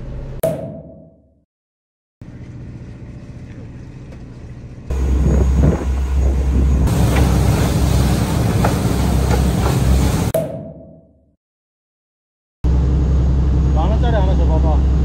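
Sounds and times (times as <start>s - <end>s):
boat engine rumble: 2.2s - 10.3s, 12.7s - 15.0s
wind on microphone: 4.9s - 7.6s.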